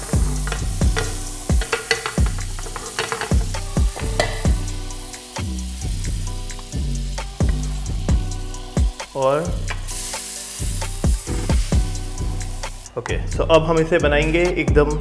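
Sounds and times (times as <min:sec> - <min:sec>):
butter sizzling in a pan: 0:00.0 - 0:13.0
music with a steady beat: 0:00.0 - 0:15.0.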